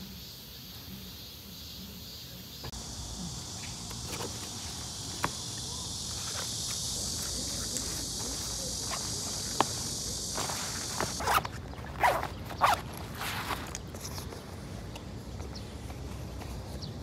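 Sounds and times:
insects chorus: 0.0 - 17.0
clicks and knocks of handled books: 3.7 - 16.9.

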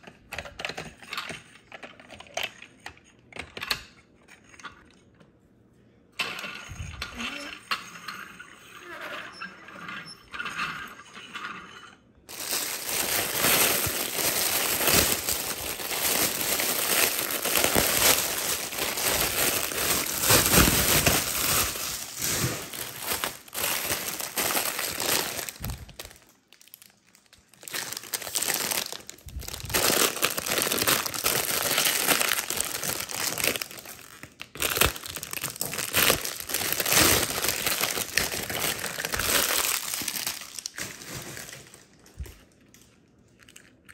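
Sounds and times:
plastic bags crinkling: 12.3 - 42.9.

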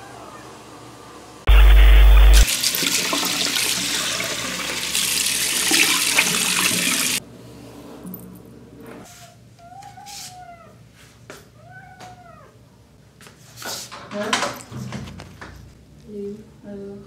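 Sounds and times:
electronic static buzz: 1.5 - 2.6
tap water running: 2.4 - 7.2.

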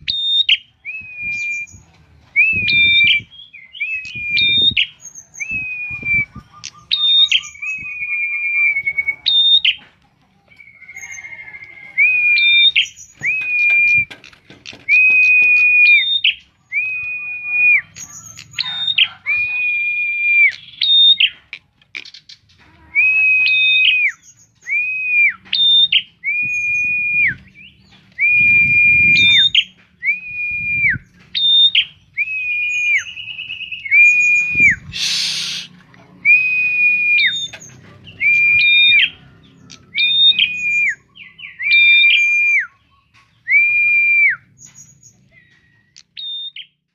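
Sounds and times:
bird whistling high notes: 28.2 - 35.7.

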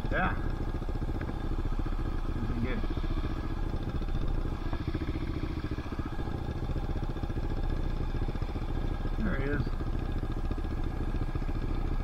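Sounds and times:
dirt bike engine running: 0.0 - 12.0.

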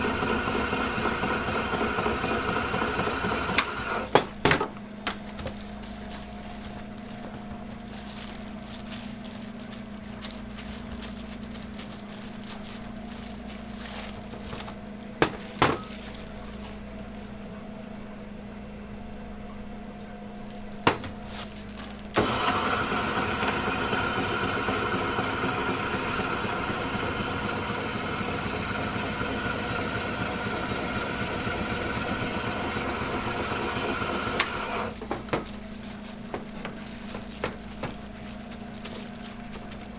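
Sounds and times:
shaved-ice machine whirring: 0.0 - 4.2, 21.7 - 39.9.

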